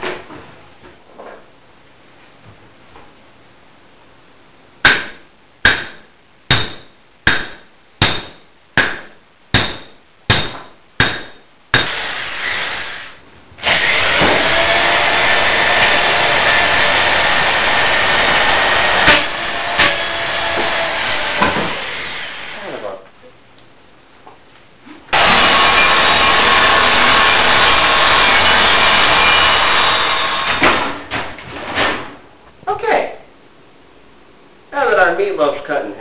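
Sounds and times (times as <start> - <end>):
sharp knocks: 4.8 - 12.0
power drill whining: 11.9 - 22.6, 25.1 - 30.6.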